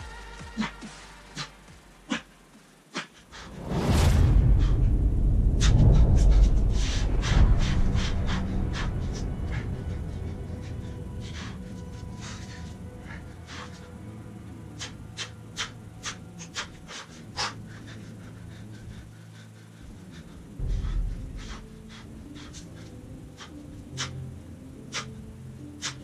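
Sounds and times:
man panting hard: 0.0s - 3.6s, 5.6s - 26.0s
dull low thump: 3.6s - 10.8s, 20.6s - 22.4s.

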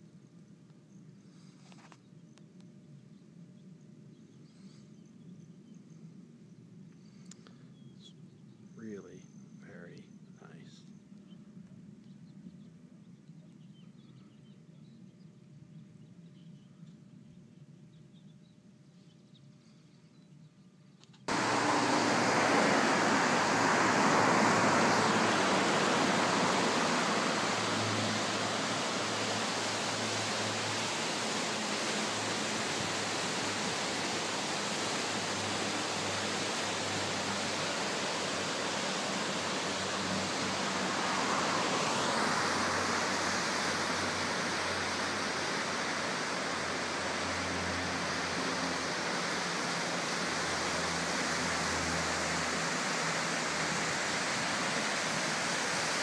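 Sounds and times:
whitewater rapids rushing: 21.3s - 56.0s.

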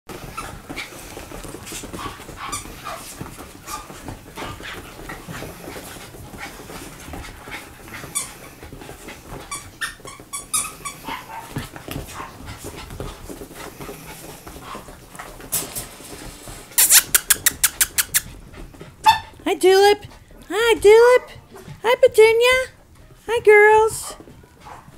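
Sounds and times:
dogs play-fighting: 0.1s - 19.4s, 20.0s - 21.8s, 22.7s - 23.3s, 24.0s - 24.9s
loud sharp dog sounds: 16.8s - 18.3s.

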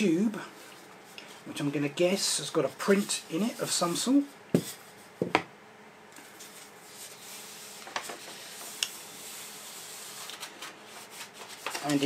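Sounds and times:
paper rustling: 6.2s - 12.0s.

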